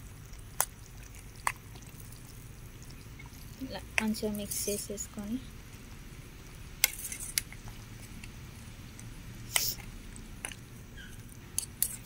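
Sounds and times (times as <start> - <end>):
spoon stirring in steel pot: 6.8 - 12.0.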